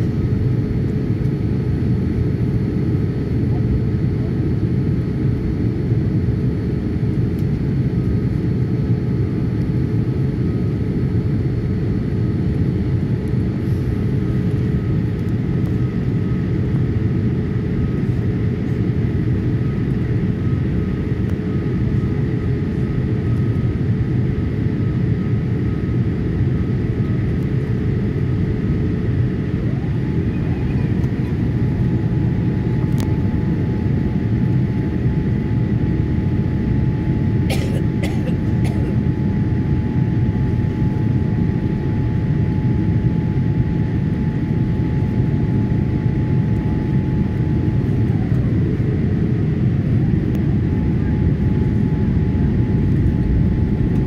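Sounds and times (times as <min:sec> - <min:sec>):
airplane cabin rumble: 0:00.0 - 0:54.0
faint steady whines: 0:00.0 - 0:54.0.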